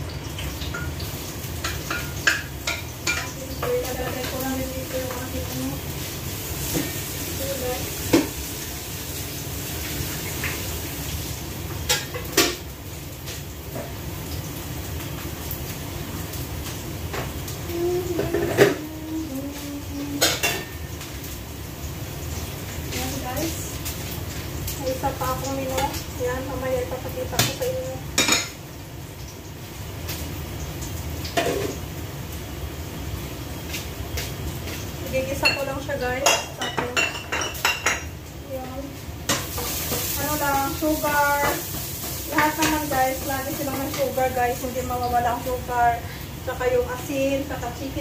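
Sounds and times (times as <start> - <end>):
dishes and cookware clattering: 1.6 - 4.4, 11.8 - 12.6, 18.1 - 18.9, 20.0 - 21.1, 27.4 - 28.6, 31.3 - 31.8, 35.4 - 38.2
kitchenware clattering: 20.1 - 20.8, 28.2 - 28.6, 35.4 - 38.2.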